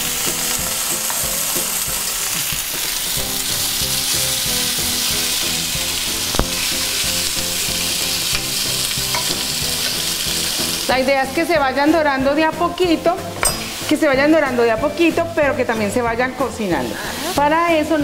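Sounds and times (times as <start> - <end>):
sausages sizzling in a pan: 0.0 - 18.0
fork tapping pan: 8.3 - 10.1, 13.4 - 13.8.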